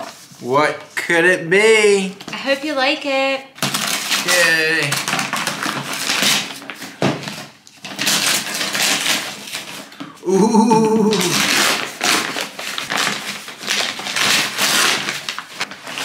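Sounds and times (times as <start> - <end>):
paper ripping and crinkling: 3.6 - 9.9, 11.1 - 16.0.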